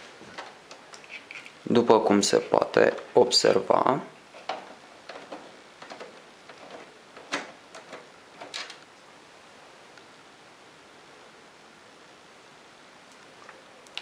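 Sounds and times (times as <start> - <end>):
screwdriver clicks and scrapes: 0.9 - 1.6.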